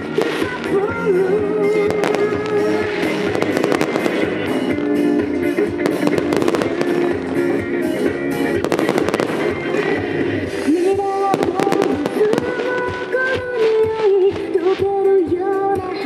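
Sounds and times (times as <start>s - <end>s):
fireworks bangs and crackles: 0.0s - 15.1s
loud pop music: 0.0s - 16.0s.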